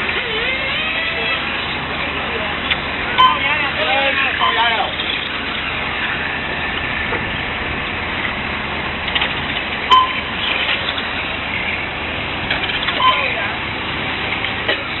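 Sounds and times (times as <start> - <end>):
rc cars whirring: 0.0 - 1.8
short electronic beep: 3.2 - 3.6, 9.9 - 10.4, 12.9 - 13.5.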